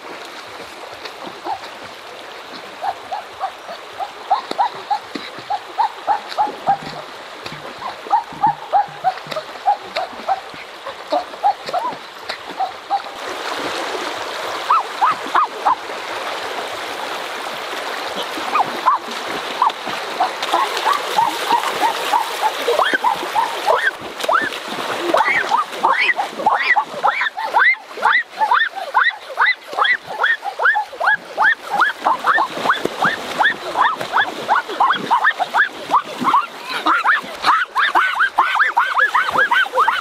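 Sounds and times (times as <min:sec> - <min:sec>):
river water over stones: 0:00.0 - 0:40.0
person splashing in water: 0:04.4 - 0:15.8, 0:18.0 - 0:40.0.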